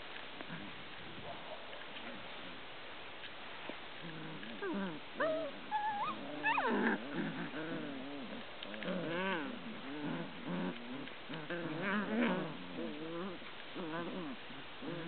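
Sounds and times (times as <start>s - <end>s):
puppies growling: 4.0s - 15.0s
puppies whining and yipping: 4.6s - 7.6s.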